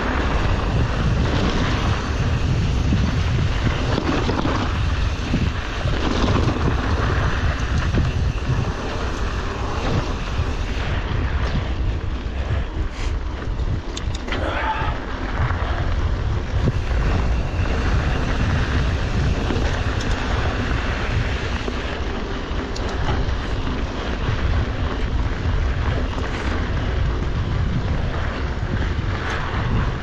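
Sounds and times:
bike tyres rolling on trail: 0.0s - 30.0s
wind rumbling on microphone: 0.0s - 30.0s
light clicks: 13.9s - 14.4s.

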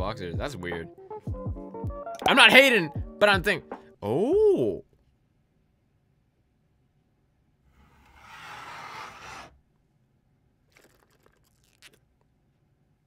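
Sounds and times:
slurping through a straw: 10.7s - 12.2s
straw sucking crackles: 10.7s - 12.2s.

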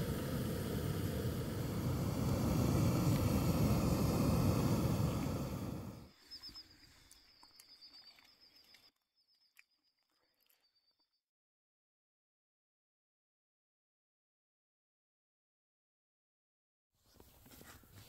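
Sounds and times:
faint high chirping: 6.1s - 11.2s.

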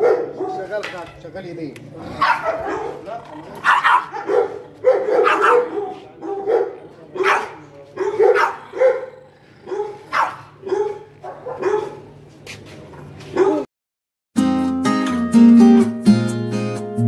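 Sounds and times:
dog barking: 0.0s - 0.8s, 2.2s - 12.2s, 13.3s - 13.7s.

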